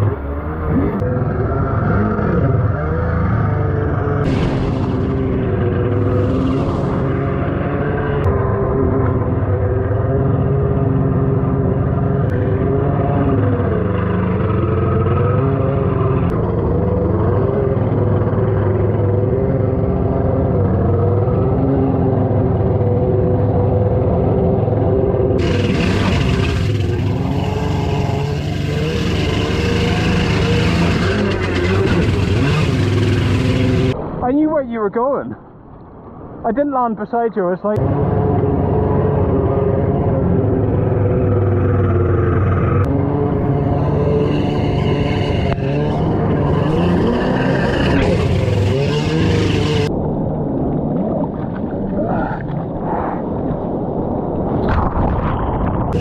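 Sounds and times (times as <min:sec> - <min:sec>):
churning water: 0:00.0 - 0:34.0
jet ski engine running: 0:00.0 - 0:34.0, 0:37.8 - 0:51.9
water splashing against hull: 0:49.5 - 0:56.0.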